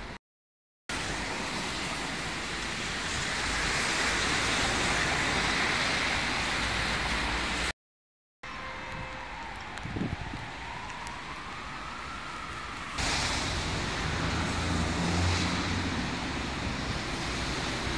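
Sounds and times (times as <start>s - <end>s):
tyres hissing on wet cobblestones: 0.9s - 7.7s, 10.4s - 17.9s.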